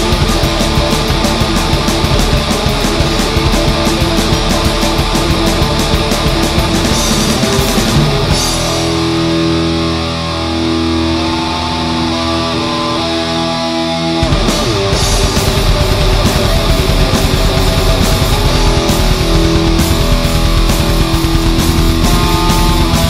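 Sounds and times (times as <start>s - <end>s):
fast drumming: 0.0s - 9.2s, 14.2s - 23.0s
distorted electric guitars: 0.0s - 23.0s.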